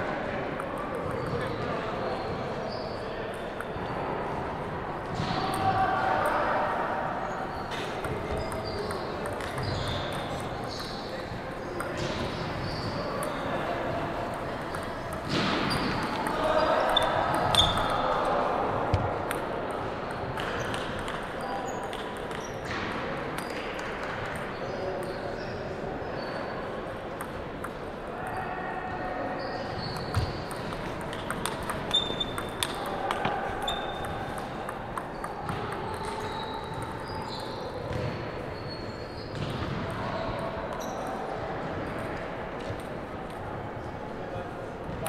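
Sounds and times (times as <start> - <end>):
table tennis balls bouncing: 0.5 - 1.7, 7.7 - 18.1, 18.7 - 25.2, 27.0 - 28.4, 29.6 - 38.5.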